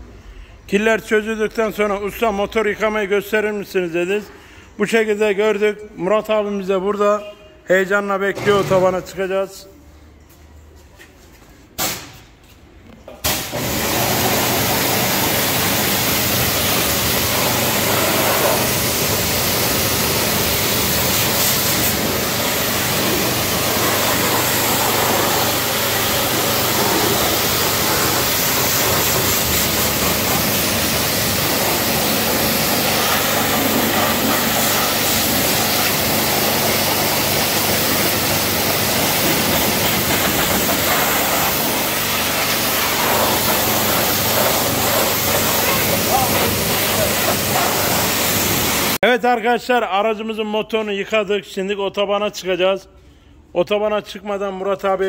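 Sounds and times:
pressure washer spraying water: 0:13.2 - 0:49.0.

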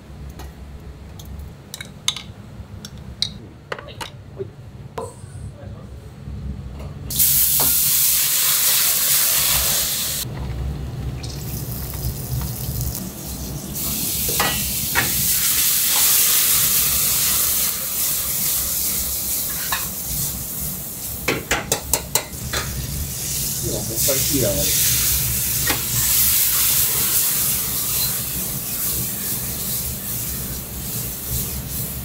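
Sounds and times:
food sizzling in hot oil: 0:07.1 - 0:10.3, 0:11.2 - 0:21.3, 0:22.3 - 0:32.0.

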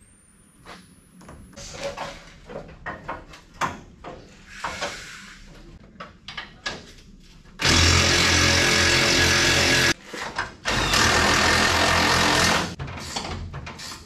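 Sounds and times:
power tool running: 0:07.6 - 0:10.0, 0:10.7 - 0:12.8.

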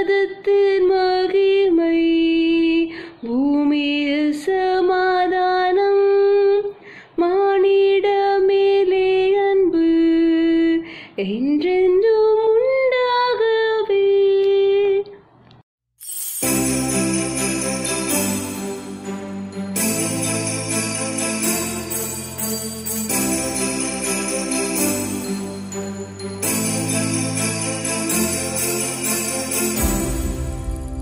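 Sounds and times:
woman singing unaccompanied: 0:00.0 - 0:15.1.

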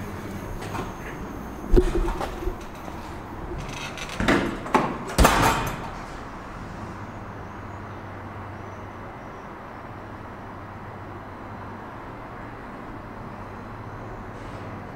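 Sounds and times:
elevator door shutting clunks: 0:00.0 - 0:07.8
steady low hum: 0:00.0 - 0:09.4.

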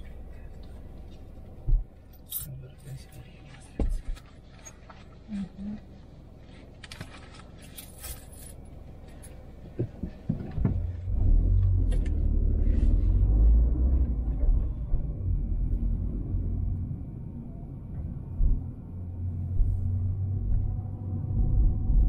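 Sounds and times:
road noise low rumble: 0:00.0 - 0:22.0
car interior rattles and jingles: 0:06.8 - 0:11.1.

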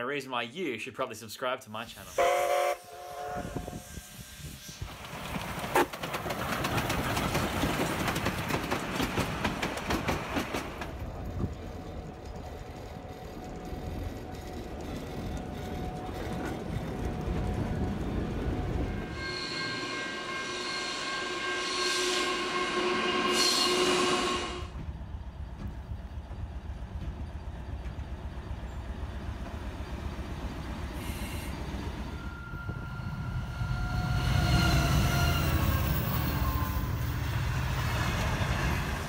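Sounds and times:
diesel locomotive engine running: 0:02.0 - 0:39.0
steam locomotive exhaust beats: 0:02.0 - 0:39.0
train horn: 0:02.1 - 0:04.3, 0:18.6 - 0:24.8, 0:32.1 - 0:37.1.

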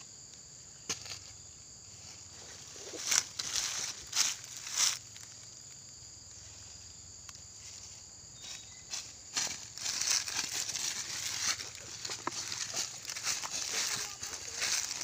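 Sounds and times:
insects humming: 0:00.0 - 0:15.0
footsteps in dry leaves: 0:02.4 - 0:05.2, 0:07.7 - 0:15.0.

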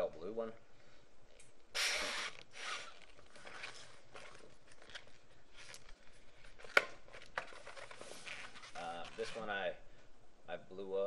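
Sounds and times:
balloon rubbing and rustling: 0:01.7 - 0:04.2, 0:07.9 - 0:09.6.

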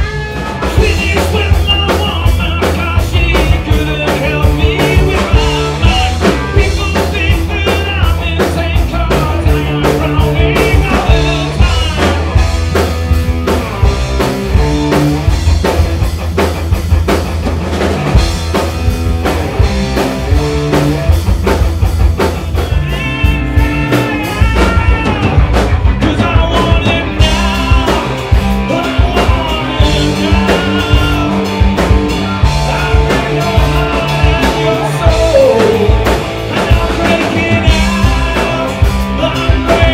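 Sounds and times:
man singing lead vocals: 0:00.0 - 0:12.8, 0:22.2 - 0:39.9
bass guitar: 0:00.0 - 0:39.9
drum kit: 0:00.0 - 0:39.9
electric guitar: 0:00.0 - 0:39.9.

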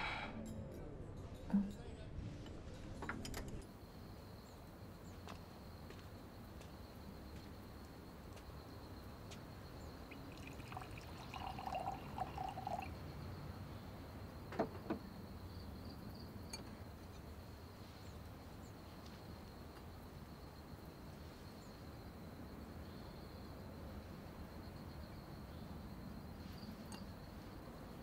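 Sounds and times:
wine pouring into a glass: 0:10.1 - 0:13.0.

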